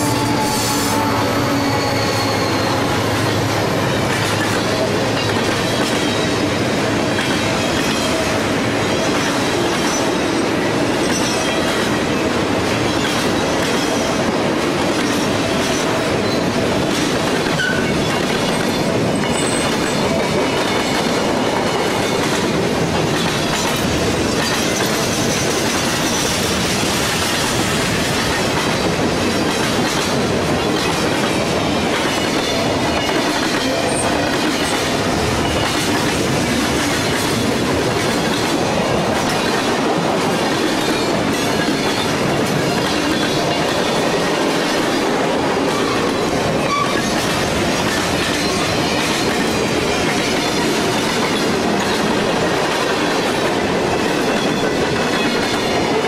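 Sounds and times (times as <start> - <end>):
high wheel squeal: 0.0 - 4.4
train wheels rumbling on rails: 0.0 - 56.0.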